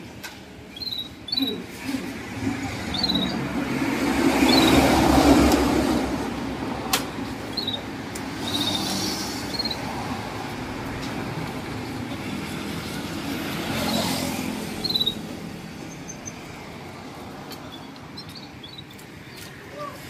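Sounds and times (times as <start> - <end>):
bird chirping: 0.7 - 1.7, 2.7 - 3.6, 4.4 - 5.1, 7.4 - 10.0, 13.7 - 16.7, 17.5 - 19.9
road vehicle passing by: 1.3 - 20.0.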